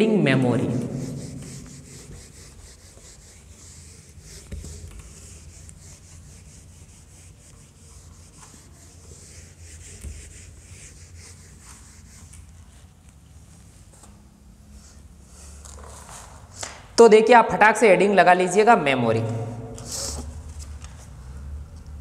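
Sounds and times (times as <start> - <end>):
duster rubbing on whiteboard: 0.6 - 12.9.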